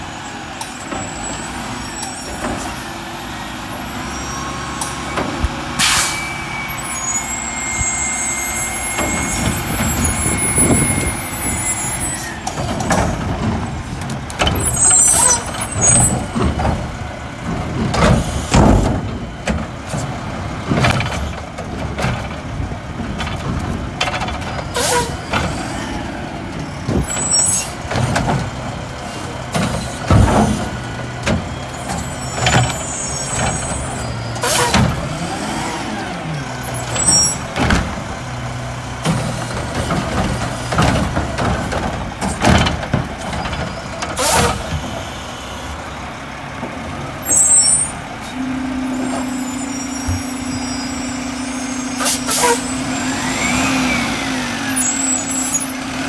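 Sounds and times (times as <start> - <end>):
truck diesel engine: 0.0 - 56.0
carts banging and clattering: 8.6 - 25.8, 26.5 - 35.6, 36.4 - 45.2.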